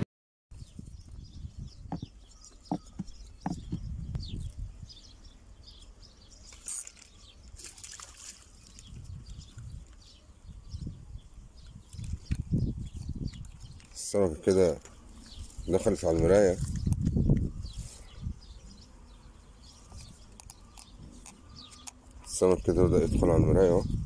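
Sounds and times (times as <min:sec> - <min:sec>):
water splashing: 0:07.6 - 0:08.9.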